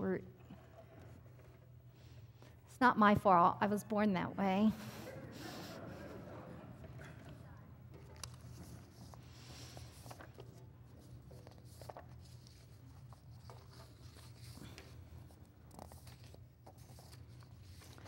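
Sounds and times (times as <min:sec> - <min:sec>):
paper rustling and crinkling: 0:08.0 - 0:18.0.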